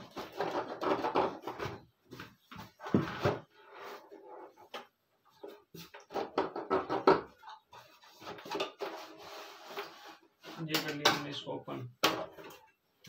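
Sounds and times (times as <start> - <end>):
plastic cover knocking and clattering: 0.0 - 1.9, 5.8 - 8.8.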